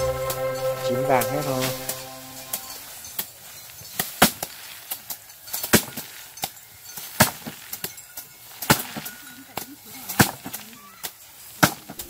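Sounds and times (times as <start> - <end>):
bamboo sticks beating stalks on tarp: 3.2 - 12.0.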